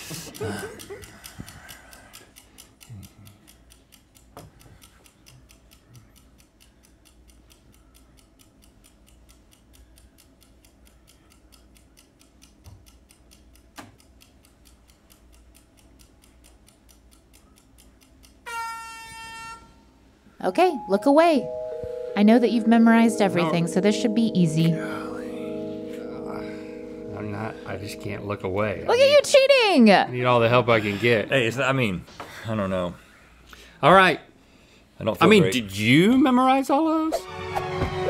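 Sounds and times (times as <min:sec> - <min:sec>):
fast clock ticking: 0:00.0 - 0:18.5, 0:22.2 - 0:24.8, 0:26.4 - 0:32.9
bright chime: 0:20.6 - 0:28.9.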